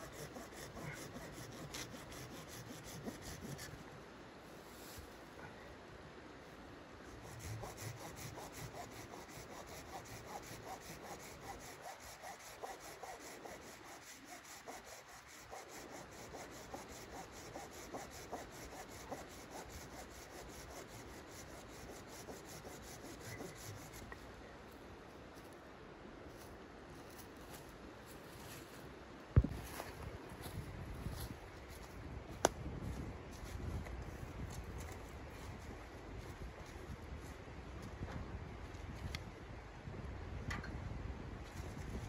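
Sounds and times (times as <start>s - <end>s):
hand saw cutting wood: 0.0s - 3.7s, 7.2s - 24.0s.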